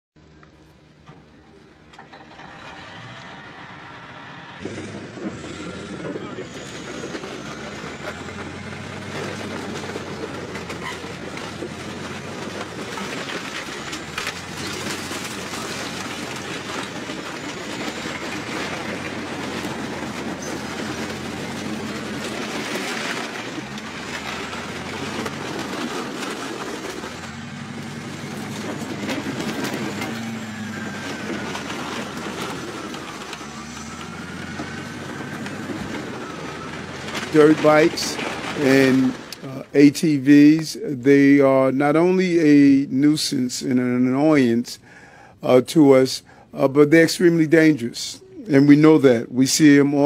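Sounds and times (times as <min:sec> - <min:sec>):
diesel engine running under load: 0:00.2 - 0:41.4, 0:44.8 - 0:45.4, 0:46.2 - 0:46.7
steel tracks clattering: 0:00.8 - 0:50.0
crunch of breaking metal and plastic: 0:04.6 - 0:39.6.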